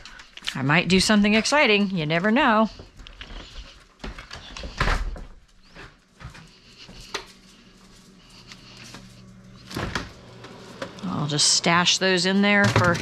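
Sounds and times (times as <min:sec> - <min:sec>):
footsteps on hard floor: 0:02.6 - 0:11.0.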